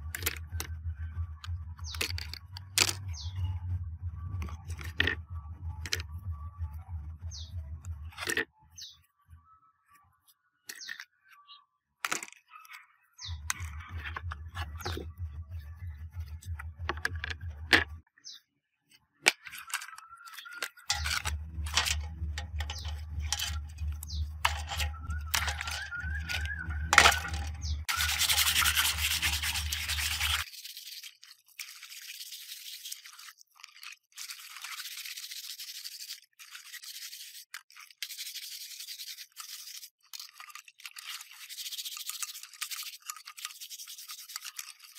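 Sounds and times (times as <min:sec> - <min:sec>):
tool scraping surface: 0:20.8 - 0:30.4.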